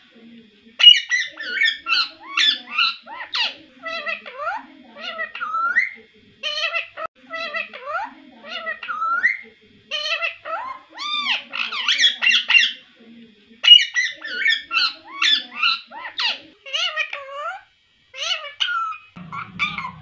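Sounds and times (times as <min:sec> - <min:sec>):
parakeet chattering: 0:00.8 - 0:12.8, 0:13.6 - 0:20.0
parrot whistled notes: 0:18.6 - 0:20.0.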